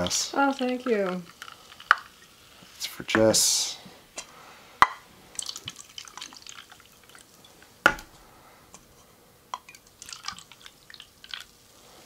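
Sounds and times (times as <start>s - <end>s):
soda fizzing as poured: 0.0s - 3.8s, 5.2s - 8.1s, 9.6s - 12.0s.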